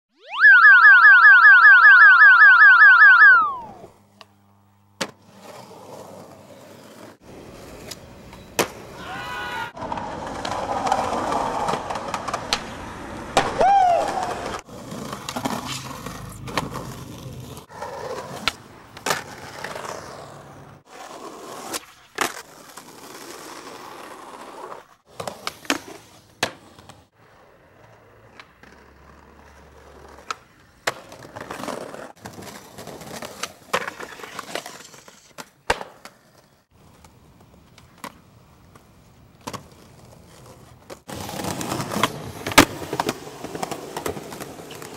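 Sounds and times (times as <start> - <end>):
skateboard tail pops and landings: 5.0 - 5.2, 7.8 - 8.9, 9.8 - 16.9, 21.4 - 23.4, 25.1 - 27.0, 30.2 - 36.4, 40.9 - 44.9
skateboard trucks grinding: 5.0 - 9.1, 9.8 - 44.9
skateboard wheels rolling: 5.0 - 44.9.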